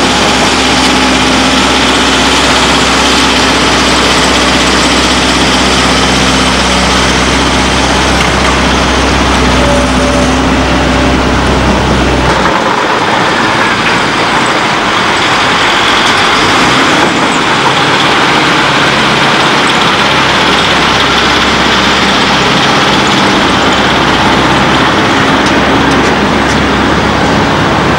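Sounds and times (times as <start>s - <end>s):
bulldozer diesel engine under load: 0.0s - 27.9s.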